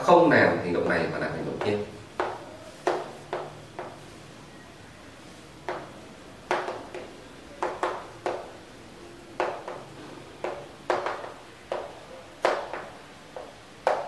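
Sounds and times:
chalk writing on chalkboard: 1.6 - 4.3, 9.4 - 14.0.

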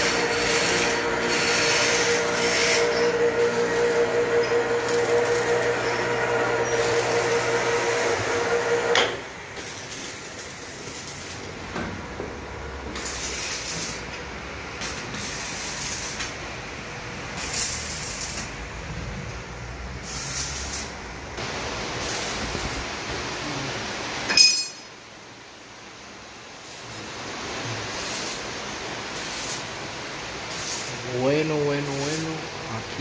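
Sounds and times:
electric hoist motor whining: 0.0 - 10.4.

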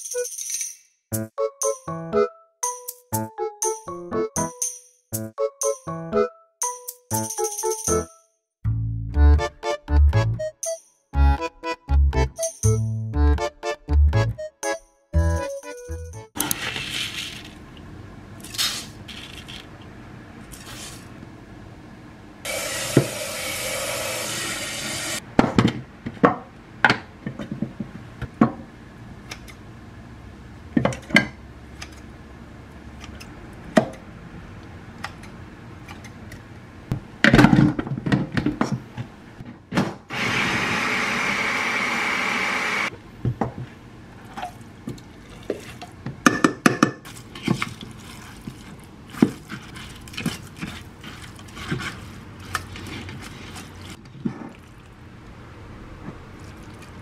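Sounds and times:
water running into pot: 22.5 - 25.2.

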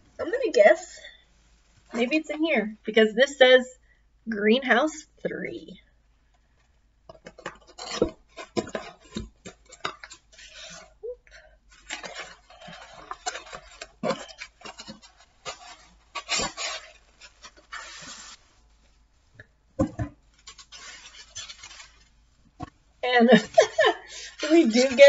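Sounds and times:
cardboard and paper rustling: 11.7 - 18.9, 20.3 - 22.6, 23.3 - 25.0.

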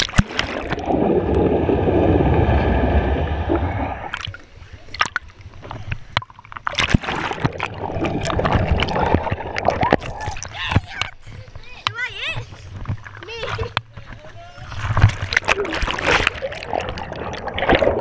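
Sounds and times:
water splashing: 0.0 - 11.5, 14.4 - 18.0
muffled underwater rumble: 0.4 - 11.6.

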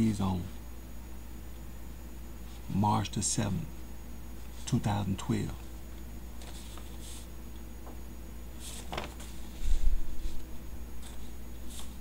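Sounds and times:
steady low hum: 0.0 - 12.0
paper rustling: 6.4 - 7.3, 8.6 - 12.0.

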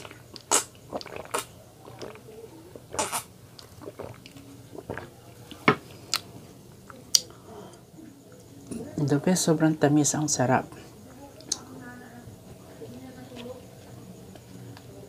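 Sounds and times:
gulping and swallowing: 0.0 - 5.2.

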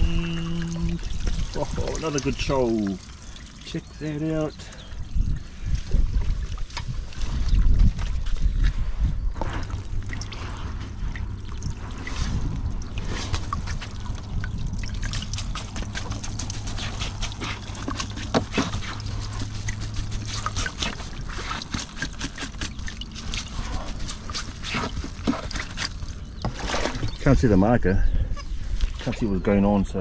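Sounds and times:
water trickling and dripping: 0.0 - 8.4, 9.4 - 27.6
hand crackling on wet mesh: 13.2 - 26.9.

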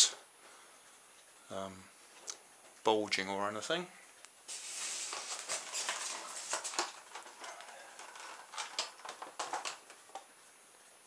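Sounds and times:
plastic scraping against foam: 4.5 - 10.2.

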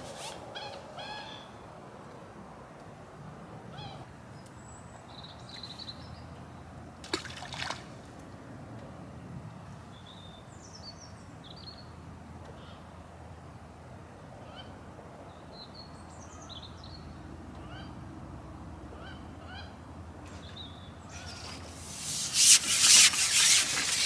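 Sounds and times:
splash in water: 7.0 - 8.1.

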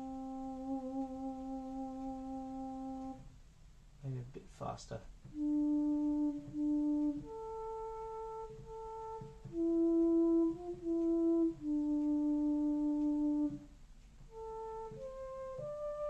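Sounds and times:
synthesizer playing held notes: 0.0 - 3.2, 5.3 - 13.7, 14.3 - 16.0
soft low thumps: 3.1 - 15.7.

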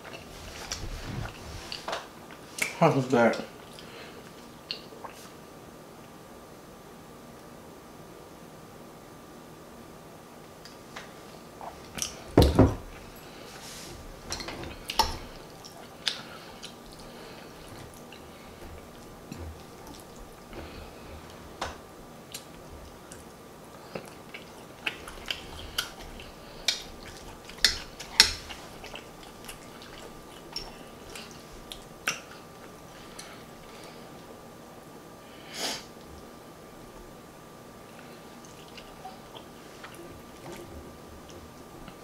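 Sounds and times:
wet chewing and smacking: 14.1 - 21.4, 22.2 - 34.0, 37.9 - 42.0.

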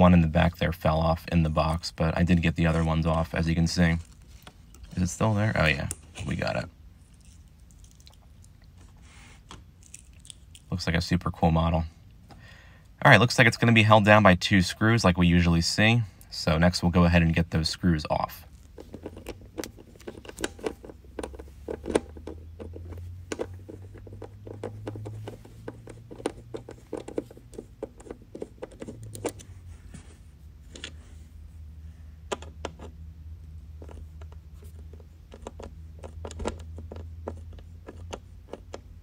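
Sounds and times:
low steady hum: 0.0 - 39.0
screwdriver clicking and scratching: 18.7 - 29.5, 33.8 - 39.0.

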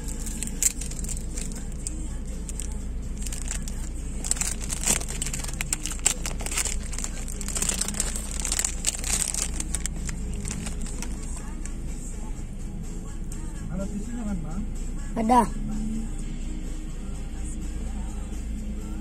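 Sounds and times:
plastic crinkling and crackling: 0.0 - 11.7
low car hum: 0.0 - 19.0.

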